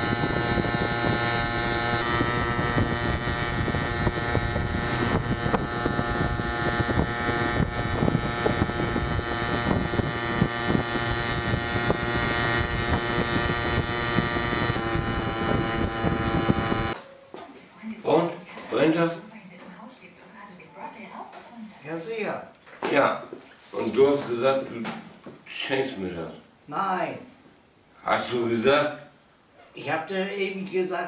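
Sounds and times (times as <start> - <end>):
small vehicle engine running: 0.0 - 17.0
wind on microphone: 0.0 - 17.0.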